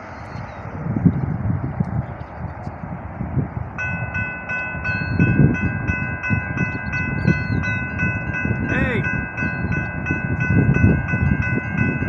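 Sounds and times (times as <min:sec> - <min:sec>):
railroad crossing bell ringing: 0:03.8 - 0:12.0.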